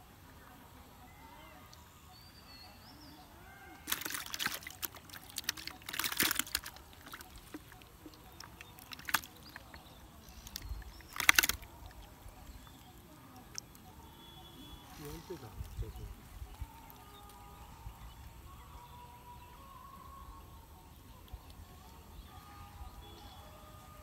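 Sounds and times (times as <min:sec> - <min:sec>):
water splashing and sloshing: 0:03.8 - 0:12.6.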